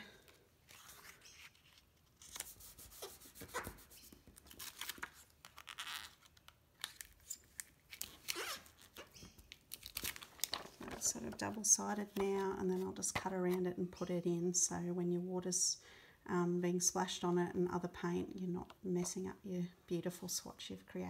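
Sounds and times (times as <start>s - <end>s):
plastic film crinkling and rubbing: 0.6s - 13.0s.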